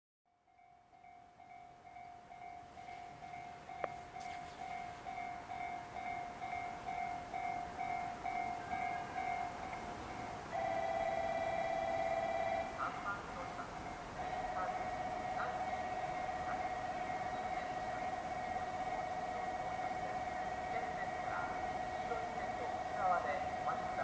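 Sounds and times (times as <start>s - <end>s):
electronic warning bell dinging: 14.2s - 24.0s.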